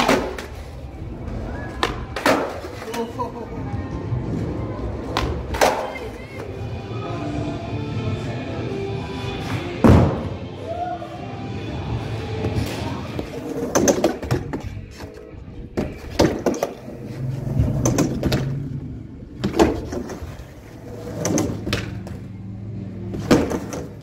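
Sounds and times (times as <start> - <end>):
skateboard clacking: 0.0 - 0.8, 1.7 - 3.2, 5.0 - 6.5, 21.1 - 22.2
skateboard wheels rolling: 0.0 - 6.7, 12.4 - 24.0
background music: 0.0 - 24.0.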